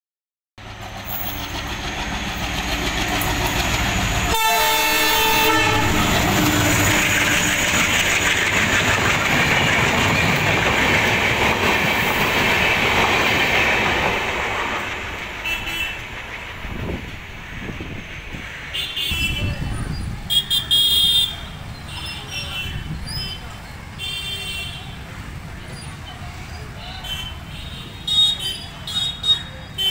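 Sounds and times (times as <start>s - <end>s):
train coaches rushing past: 0.6s - 29.9s
train horn: 4.3s - 8.1s, 15.4s - 16.0s.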